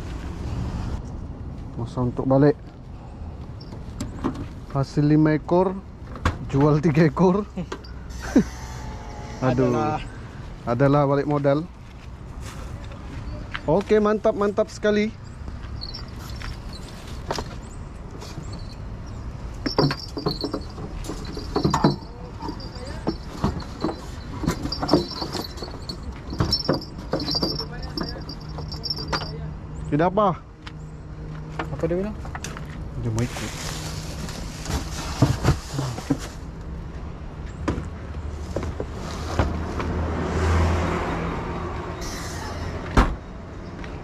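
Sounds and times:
metallic clatters of gear: 0:15.8 - 0:17.2, 0:19.6 - 0:29.4
plastic bag rustling: 0:33.2 - 0:36.4.

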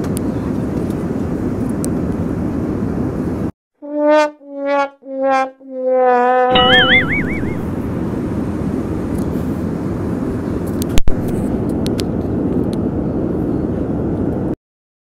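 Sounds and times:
airliner cabin engine rumble: 0:07.6 - 0:14.6.

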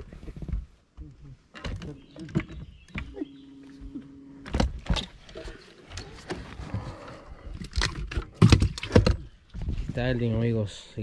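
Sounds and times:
electric trolling motor humming: 0:02.9 - 0:05.5.

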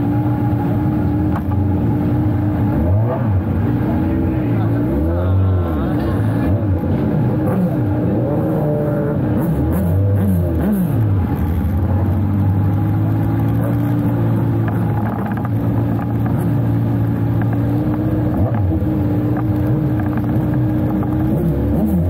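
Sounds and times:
sidecar engine running: 0:00.0 - 0:22.0.

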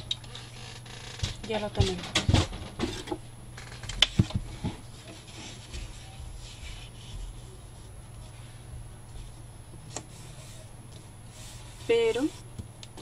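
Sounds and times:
hands rubbing paper: 0:04.9 - 0:12.5.

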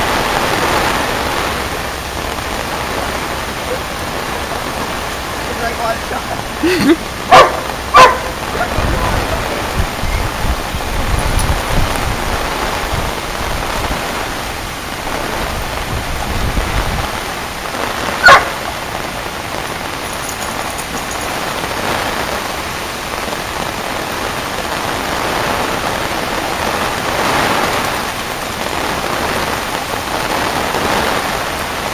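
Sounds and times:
heavy rain: 0:00.0 - 0:31.9
dog barking: 0:07.3 - 0:08.7, 0:18.2 - 0:18.7
dogs splashing through water: 0:19.6 - 0:21.9.

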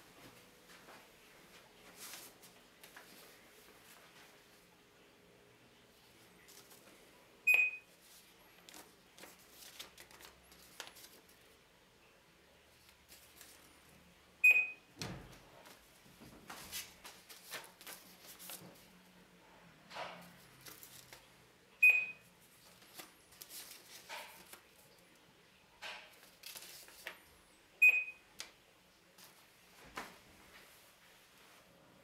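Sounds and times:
paper rustling: 0:01.8 - 0:04.6, 0:06.0 - 0:07.0, 0:07.9 - 0:11.6, 0:12.8 - 0:13.8, 0:15.6 - 0:19.0, 0:20.2 - 0:21.4, 0:22.4 - 0:25.1, 0:25.9 - 0:27.3
barcode scanner beeps: 0:07.5 - 0:07.9, 0:14.4 - 0:14.9, 0:21.8 - 0:22.2, 0:27.8 - 0:28.2.

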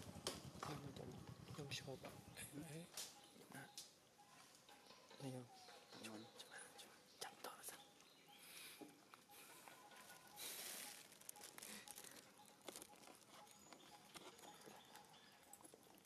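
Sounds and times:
monkeys chewing food: 0:00.0 - 0:16.0
faint leaf rustles: 0:09.3 - 0:13.4.

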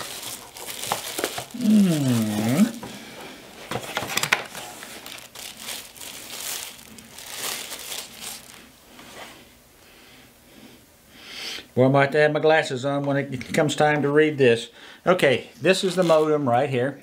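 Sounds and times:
wrapping crinkling and rustling: 0:00.0 - 0:09.4, 0:15.7 - 0:17.0.

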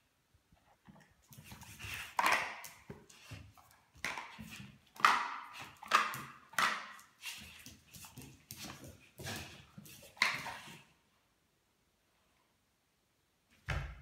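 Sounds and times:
puppy paws slapping on tiles: 0:00.6 - 0:10.9.

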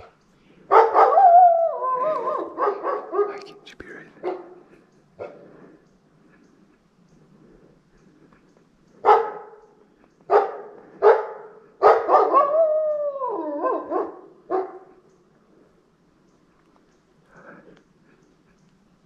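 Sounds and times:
wolf barking: 0:00.0 - 0:05.6, 0:09.0 - 0:15.1
wolf bark-howl: 0:00.7 - 0:03.5, 0:10.3 - 0:15.0.

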